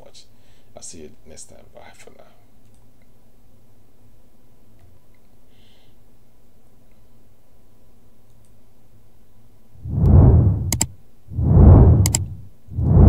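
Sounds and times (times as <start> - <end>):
faint steady hum: 0.0 - 13.0
whoosh: 9.8 - 13.0
double mouse click: 10.7 - 10.9, 12.0 - 12.2.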